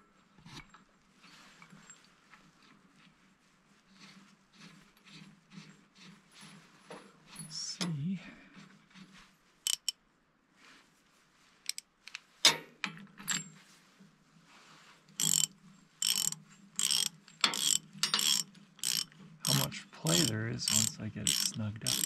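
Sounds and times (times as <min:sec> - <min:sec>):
ratchet wrench clicking: 0:09.7 - 0:09.9, 0:15.2 - 0:22.0.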